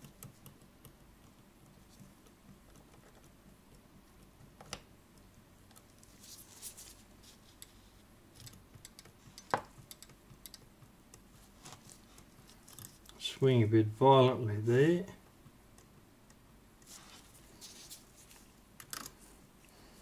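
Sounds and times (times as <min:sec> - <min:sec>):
small tool clicking on clock: 0:08.4 - 0:11.3.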